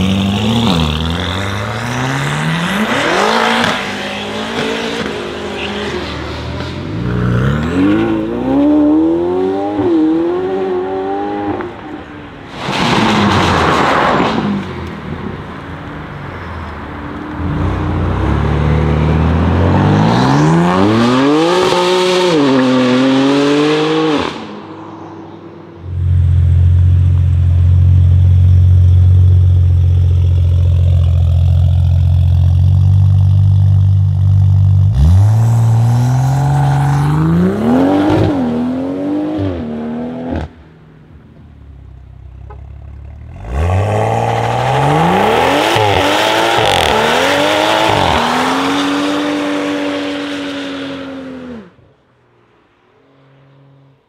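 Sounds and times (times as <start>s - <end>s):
car engines accelerating hard: 0.0s - 12.2s, 30.2s - 40.6s, 43.2s - 51.8s.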